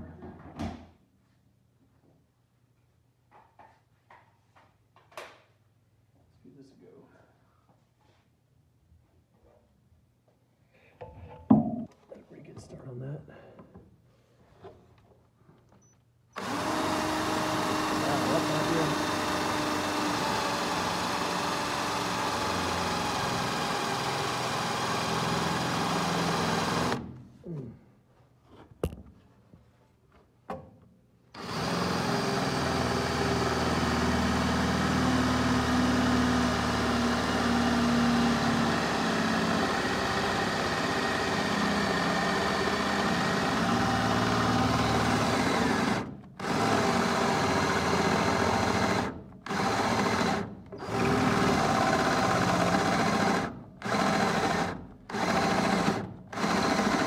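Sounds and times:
cordless drill boring holes: 16.4 - 27.1, 31.4 - 57.0.

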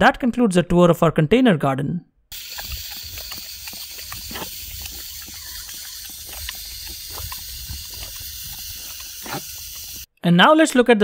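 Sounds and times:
dog biting at water: 2.3 - 10.1
garden hose nozzle hissing: 2.3 - 10.1.

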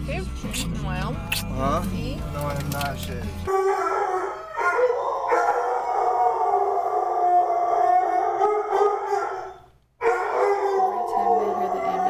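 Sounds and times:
dog howling: 3.5 - 12.0.

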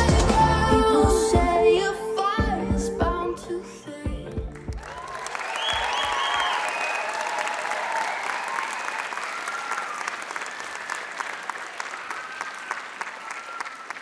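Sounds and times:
audience applauding: 4.5 - 14.0.

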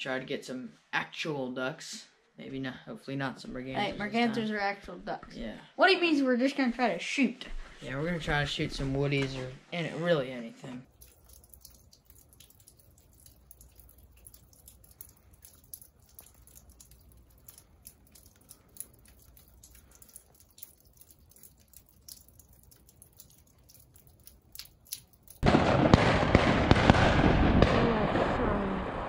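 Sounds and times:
falling snow ticking: 10.9 - 25.6.

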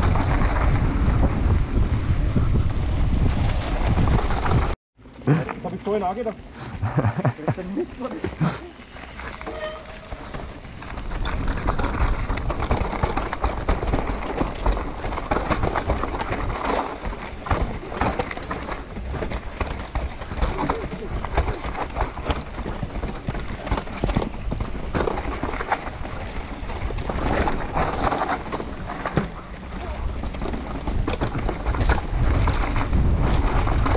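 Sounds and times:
wind rumble on microphone: 0.0 - 4.8, 18.8 - 33.9
bike rattling and knocking: 7.3 - 33.9
tyres crunching over gravel: 7.6 - 33.9.

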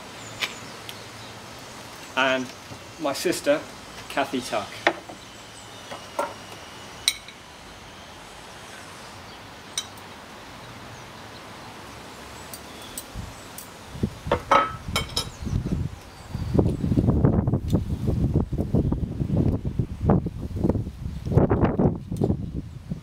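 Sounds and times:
glass bottle knocking on wooden table: 14.3 - 15.2.

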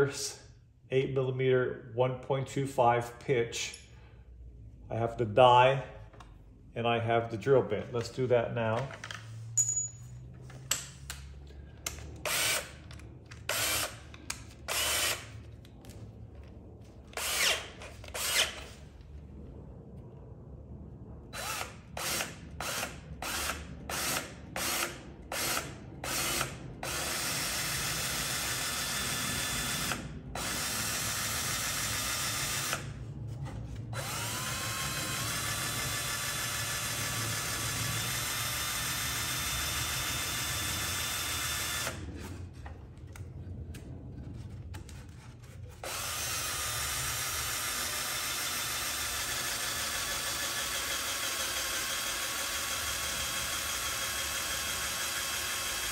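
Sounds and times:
cordless drill drilling metal: 12.2 - 15.3, 17.2 - 18.7, 21.4 - 32.9, 33.9 - 42.0, 45.8 - 55.9.

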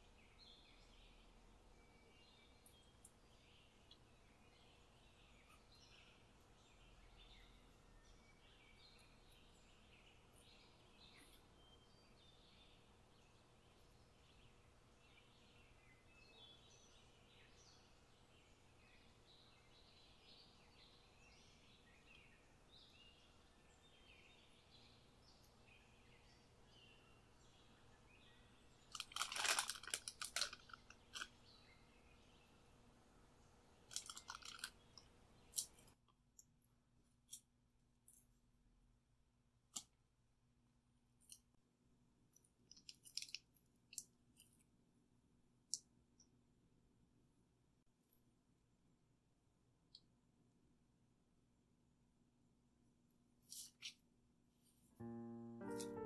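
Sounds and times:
faint bird chirps: 0.0 - 29.0
plastic bag crinkling: 28.9 - 31.4, 33.9 - 35.0, 42.9 - 43.4.

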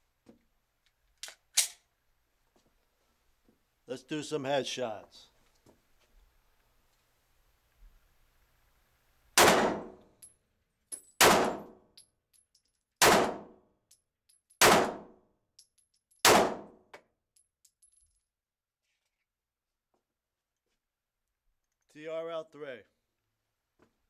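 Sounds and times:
pistol shots echoing indoors: 9.4 - 10.1, 11.2 - 11.8, 13.0 - 13.6, 14.6 - 15.2, 16.2 - 16.8.

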